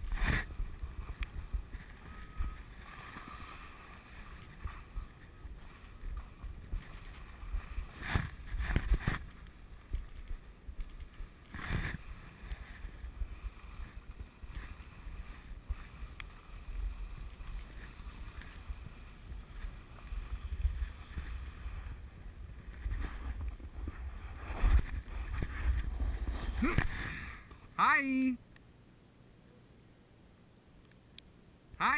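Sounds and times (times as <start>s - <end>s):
board edges scraping snow: 0.0s - 10.2s, 11.2s - 27.3s
wind rumbling on microphone: 0.0s - 27.4s
swish on snow: 22.6s - 27.0s.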